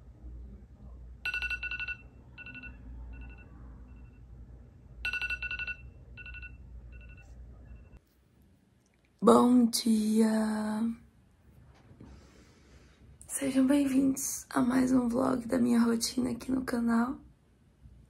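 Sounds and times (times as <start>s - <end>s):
low steady hum: 0.0s - 18.0s
phone alarm beeping: 1.2s - 4.3s, 5.0s - 8.0s.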